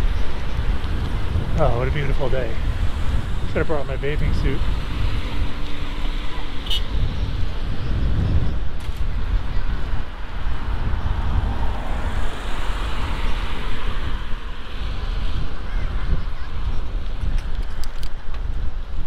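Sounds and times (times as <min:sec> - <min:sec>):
steady rushing noise: 0:00.0 - 0:19.0
wind buffeting microphone: 0:00.0 - 0:19.0.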